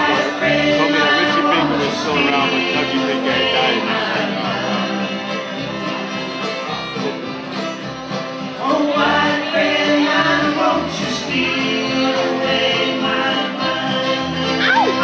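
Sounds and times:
bluegrass string band playing: 0:00.0 - 0:15.0.

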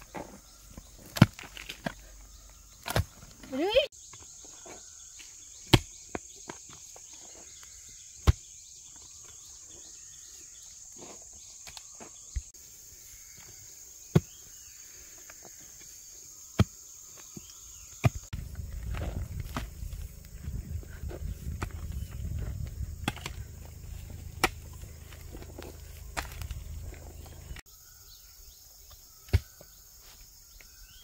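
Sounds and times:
insects buzzing: 0:00.0 - 0:31.0
digging tool striking ground: 0:02.8 - 0:03.6, 0:05.6 - 0:06.2, 0:18.0 - 0:27.6.

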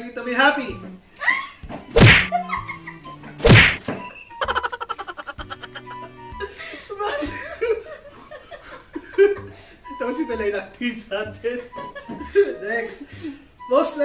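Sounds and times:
music: 0:00.0 - 0:14.0
loud slaps into flour: 0:02.0 - 0:02.4, 0:03.4 - 0:03.8.

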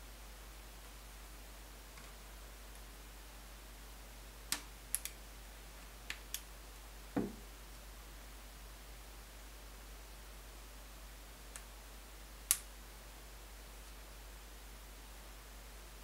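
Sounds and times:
dull knock on tablet: 0:07.2 - 0:07.4.

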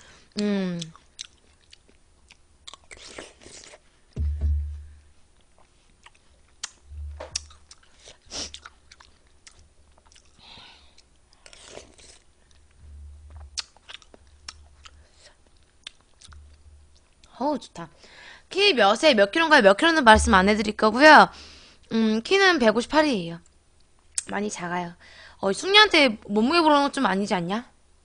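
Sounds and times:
wet chewing and crunching: 0:00.8 - 0:03.8, 0:05.5 - 0:17.4
dull low thumps: 0:04.2 - 0:05.1, 0:06.9 - 0:07.6, 0:12.8 - 0:13.6, 0:16.3 - 0:17.0, 0:20.1 - 0:20.8.

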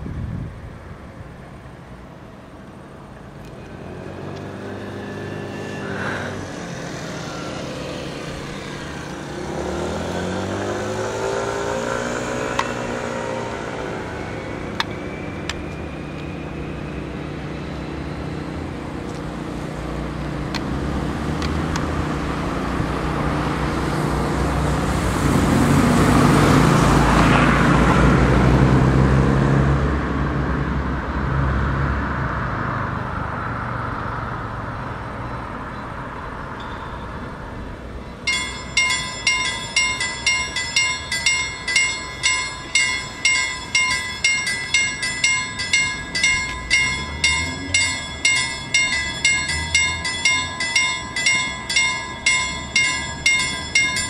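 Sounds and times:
cars driving past: 0:00.8 - 0:54.0
motorcycle driving past: 0:03.7 - 0:18.8.

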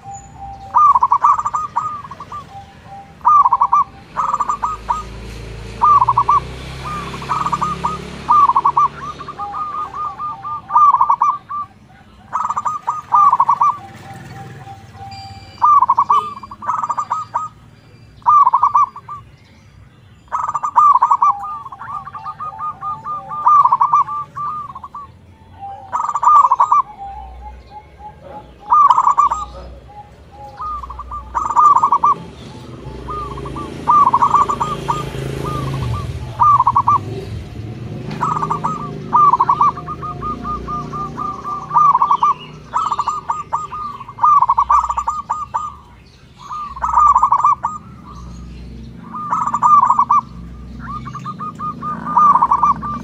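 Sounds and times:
doves cooing: 0:00.0 - 0:53.0.

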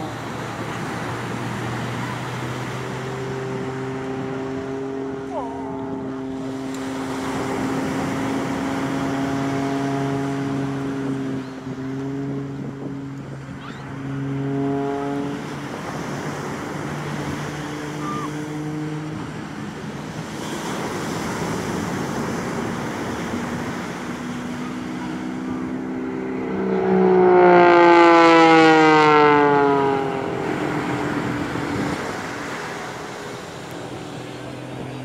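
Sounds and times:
aircraft engine droning: 0:00.0 - 0:35.0.

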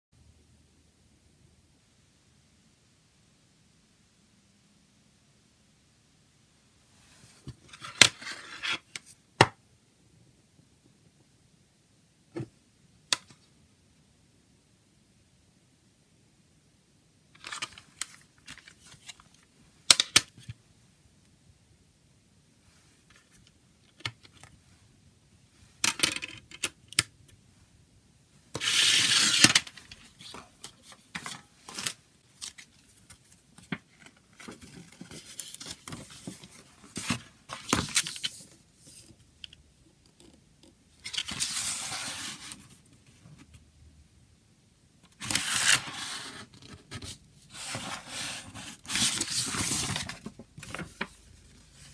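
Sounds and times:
paper rustling and sliding: 0:28.6 - 0:39.2, 0:41.0 - 0:42.8, 0:45.2 - 0:51.9.

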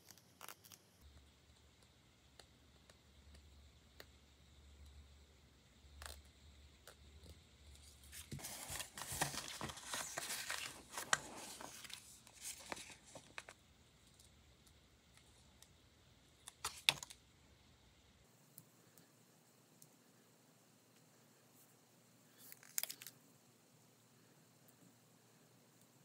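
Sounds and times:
plastic sheets crinkling: 0:07.9 - 0:13.6, 0:16.5 - 0:17.2.

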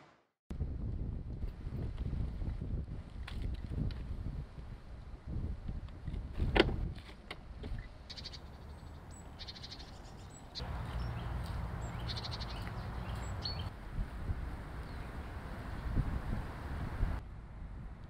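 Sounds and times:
birds rattling calls: 0:07.7 - 0:13.7
high bird chirps: 0:08.1 - 0:13.7.

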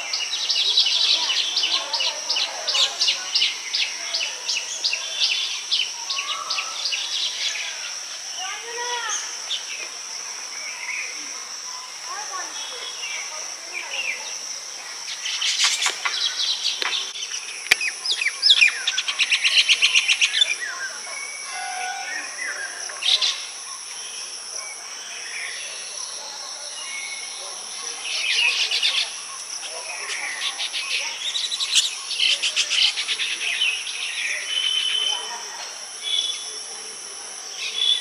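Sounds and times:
high insect drone: 0:00.0 - 0:38.0
birds chattering: 0:11.9 - 0:26.1, 0:26.7 - 0:35.4.

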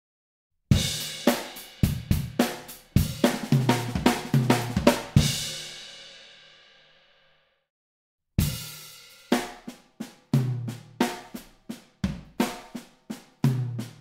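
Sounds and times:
drum fill: 0:00.7 - 0:05.8, 0:08.4 - 0:14.0
bass drum: 0:01.8 - 0:05.5, 0:12.0 - 0:12.7, 0:13.5 - 0:14.0.

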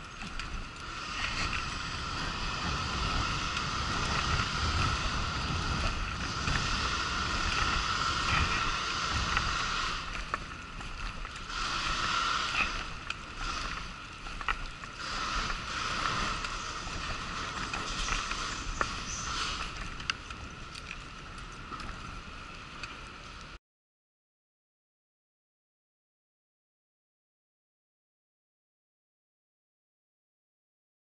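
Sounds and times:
wheelchair rolling on pavement: 0:00.0 - 0:23.6.

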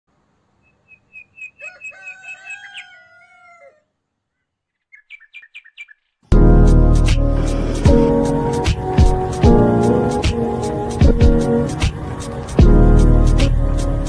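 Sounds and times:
short high chirping calls: 0:00.6 - 0:03.0, 0:04.4 - 0:06.2
rooster crowing: 0:01.5 - 0:04.0.

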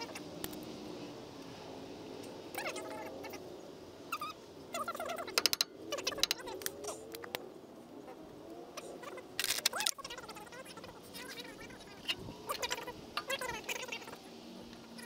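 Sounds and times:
faint squeaky chirps: 0:02.5 - 0:07.4
metallic clicks: 0:05.3 - 0:07.4
socket ratchet clicking: 0:05.4 - 0:06.4.

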